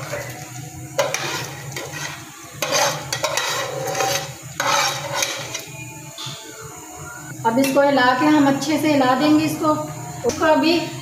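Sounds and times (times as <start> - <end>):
spoon scraping colander: 0.0 - 5.7.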